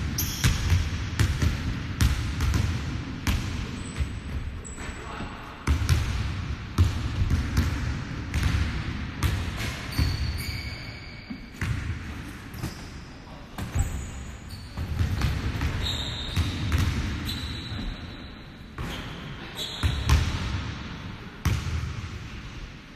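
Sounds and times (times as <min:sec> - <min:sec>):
sneaker squeaks: 0:00.1 - 0:00.7, 0:03.7 - 0:05.5, 0:09.6 - 0:20.3.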